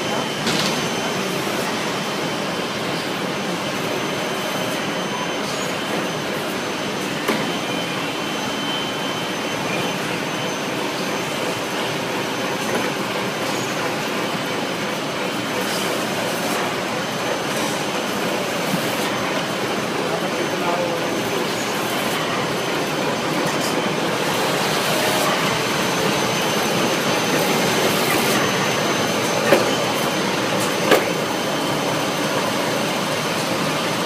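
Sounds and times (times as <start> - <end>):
high-pitched whine: 0.0 - 34.0
band saw machine din: 13.5 - 34.0.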